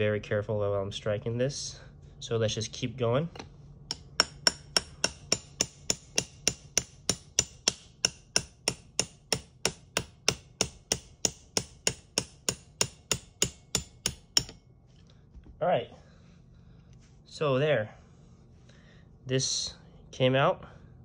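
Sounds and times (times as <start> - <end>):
hammer tapping metal punch: 3.3 - 14.7.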